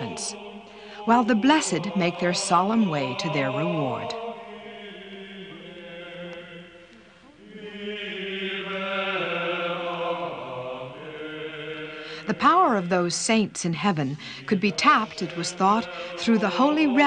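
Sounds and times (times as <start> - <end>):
voices chanting held notes: 0.0 - 17.0.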